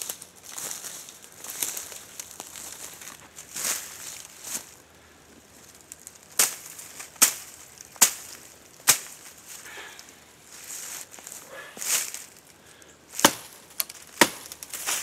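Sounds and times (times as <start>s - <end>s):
rustling of branches: 0.0s - 15.0s
sharp cutting strikes: 13.2s - 13.6s.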